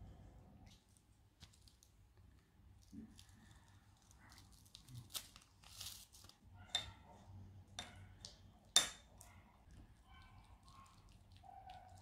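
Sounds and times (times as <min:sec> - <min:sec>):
powder sachet crinkling: 0:02.7 - 0:06.4.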